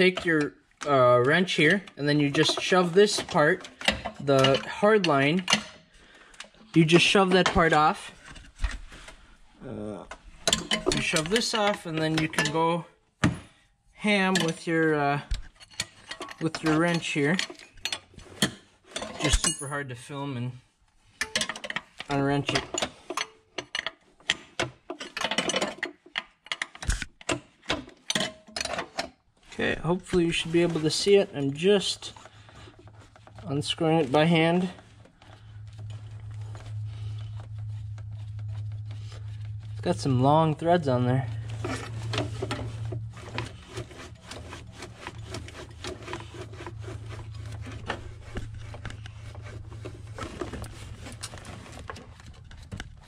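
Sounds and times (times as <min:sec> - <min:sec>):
rubbing and scraping with clicks: 0:00.0 - 0:12.9, 0:14.0 - 0:19.7, 0:20.9 - 0:53.0
steady low hum: 0:32.0 - 0:53.0.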